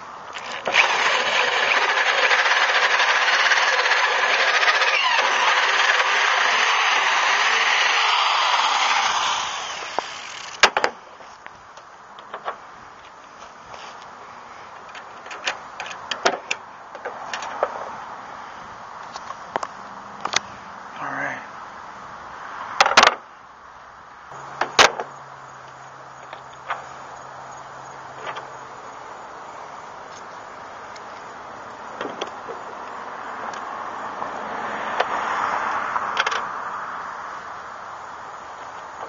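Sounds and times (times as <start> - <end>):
drill boring into steel: 0.3 - 10.6.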